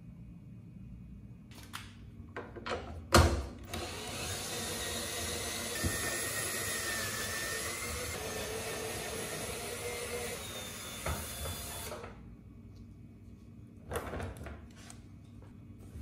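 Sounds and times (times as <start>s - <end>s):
cordless drill running: 3.7s - 12.0s.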